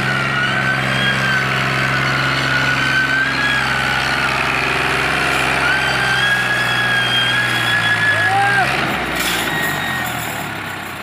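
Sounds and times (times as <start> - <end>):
tractor diesel engine under load: 0.0 - 11.0
thin high whistling tone: 5.5 - 8.6.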